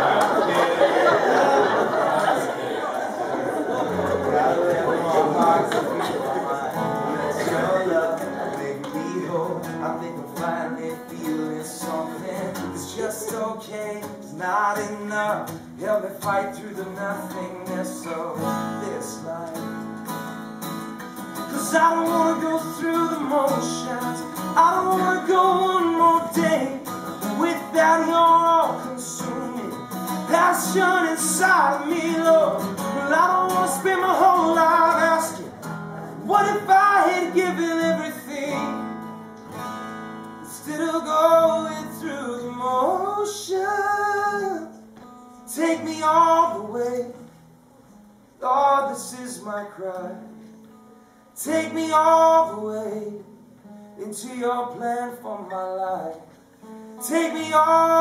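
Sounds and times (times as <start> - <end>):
acoustic guitar strummed: 3.9 - 58.0
person singing: 4.8 - 19.8, 21.4 - 38.9, 40.4 - 44.8, 57.0 - 58.0.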